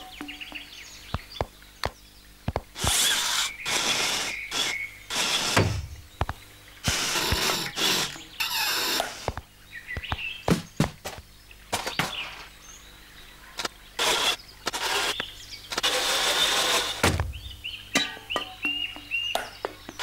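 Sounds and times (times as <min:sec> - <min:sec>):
sharp clicks and knocks: 0:00.1 - 0:03.1
toy car motor whirring: 0:02.8 - 0:05.7, 0:06.8 - 0:09.3, 0:15.8 - 0:17.0
low thud: 0:17.0 - 0:17.5.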